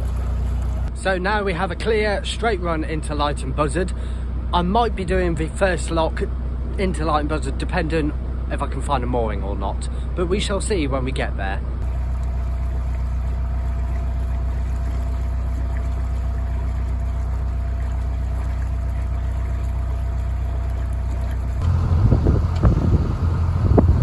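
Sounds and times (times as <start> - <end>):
boat diesel engine humming: 0.0 - 24.0
wind buffeting microphone: 13.7 - 24.0.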